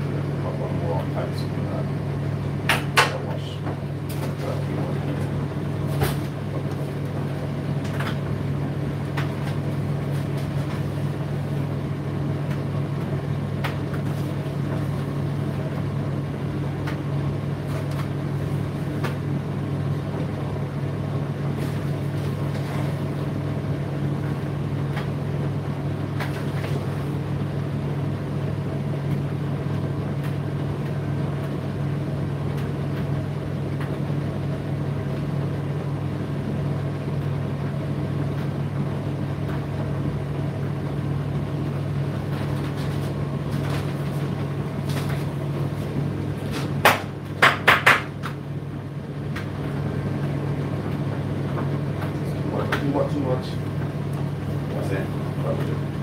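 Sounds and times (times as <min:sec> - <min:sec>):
tumble dryer humming: 0:00.0 - 0:56.0
sharp knocks: 0:46.8 - 0:48.1.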